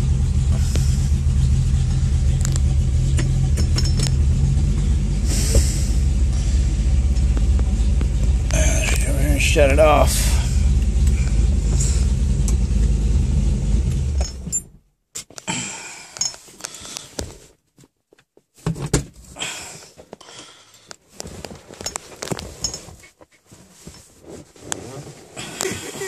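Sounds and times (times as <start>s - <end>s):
car engine idling: 0.0s - 14.5s.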